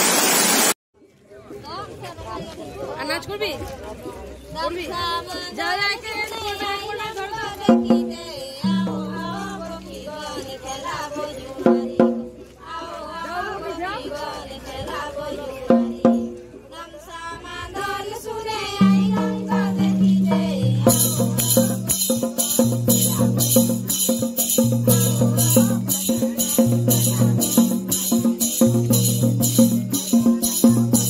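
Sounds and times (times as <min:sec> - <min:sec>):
voices: 0:01.2 - 0:31.0
low drum beat: 0:07.7 - 0:10.5, 0:11.6 - 0:12.5, 0:18.8 - 0:31.0.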